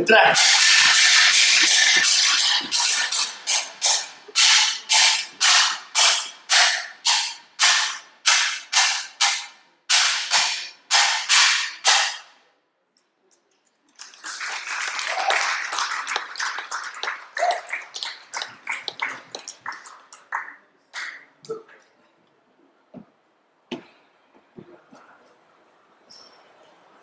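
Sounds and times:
hand cymbals clashing: 0.4 - 12.3
audience applauding: 13.9 - 21.2.

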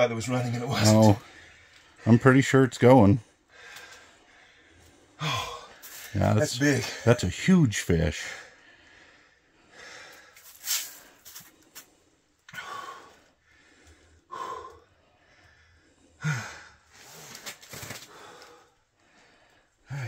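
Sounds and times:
man breathing hard: 3.3 - 6.2, 8.2 - 20.0.

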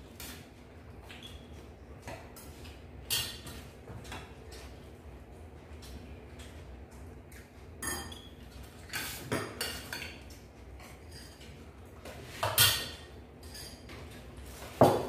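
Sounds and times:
plates and utensils clinking: 7.8 - 15.0.

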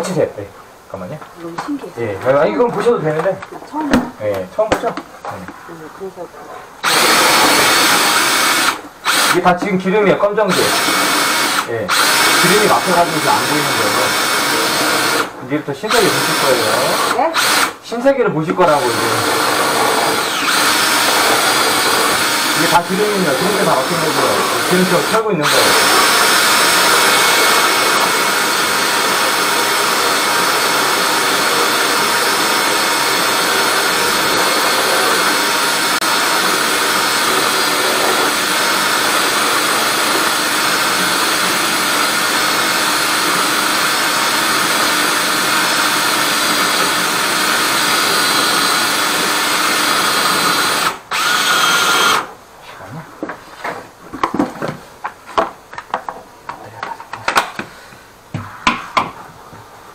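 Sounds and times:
drain-cleaning machine running: 18.7 - 51.4.

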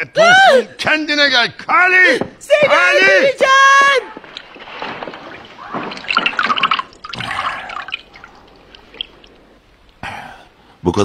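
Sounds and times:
bathwater splashing: 4.0 - 10.0
water dripping: 4.1 - 10.0.

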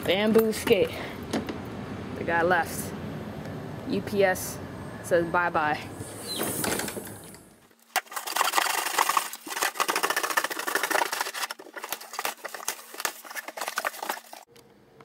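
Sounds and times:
cardboard box being cut and ripped: 8.0 - 14.4.

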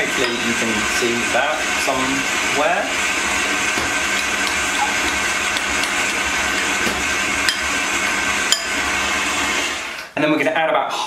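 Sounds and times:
spoon stirring thick caramel: 3.2 - 9.2
spoon clinking against glass: 8.5 - 8.8.

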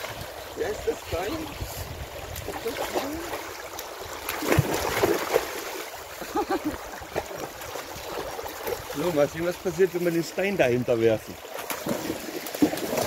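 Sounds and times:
creek rushing over stones: 0.0 - 13.0
dog splashing through water: 2.2 - 10.2, 11.2 - 13.0.

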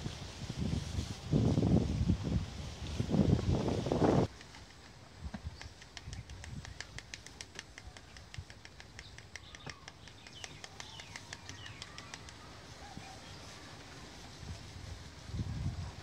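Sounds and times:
fast sharp ticks: 4.2 - 12.7.

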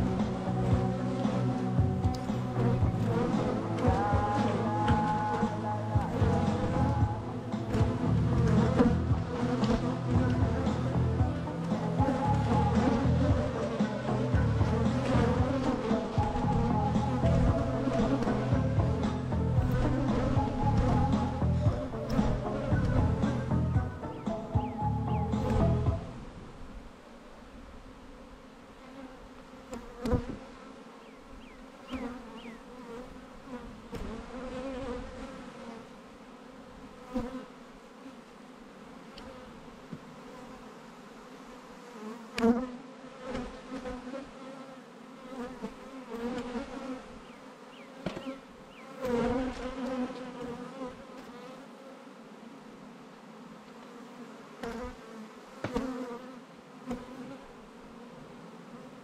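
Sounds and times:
bees buzzing: 0.0 - 59.0.

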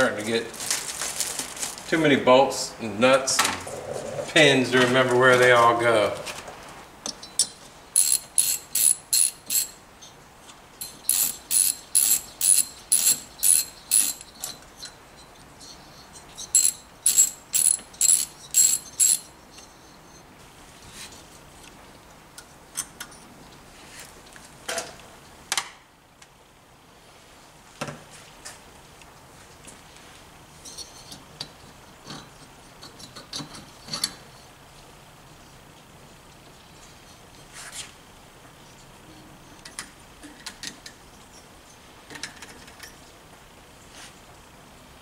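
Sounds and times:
ratchet wrench clicking: 8.0 - 9.8, 10.8 - 14.4, 16.6 - 19.3
metal parts knocking: 16.6 - 19.3.

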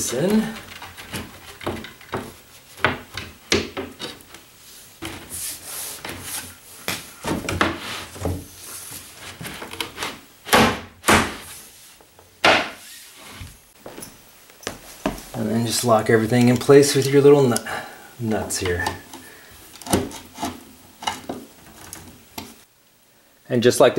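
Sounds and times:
panels scraping: 0.0 - 13.8, 18.2 - 22.6
furniture panels knocking: 0.3 - 4.0.

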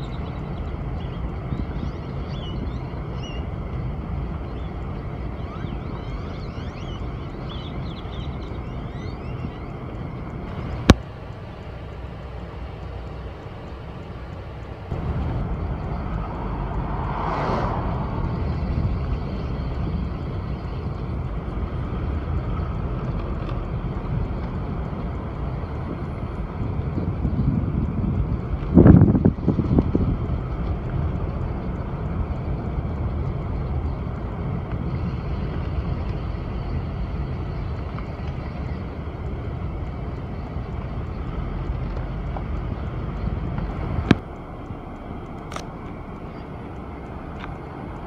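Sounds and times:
wind rumbling on microphone: 0.0 - 48.0
faint high chirps: 4.4 - 9.8
brief whoosh: 15.4 - 19.6.

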